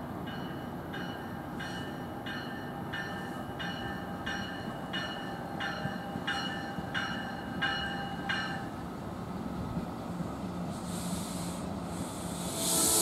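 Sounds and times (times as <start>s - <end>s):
train rumbling on rails: 0.0s - 13.0s
train bell ringing: 0.2s - 8.8s, 12.5s - 13.0s.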